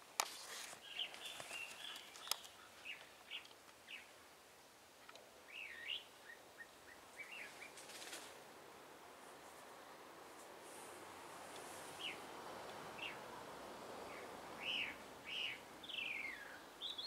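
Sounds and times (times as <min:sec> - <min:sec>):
small birds chirping: 0:00.4 - 0:04.2, 0:05.0 - 0:08.4, 0:11.4 - 0:17.0
sharp clicks: 0:01.4 - 0:02.6.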